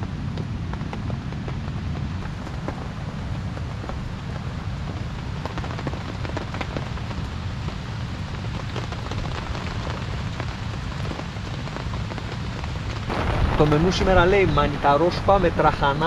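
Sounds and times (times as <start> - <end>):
steady rain falling: 0.0 - 16.0
low rumble: 12.9 - 16.0.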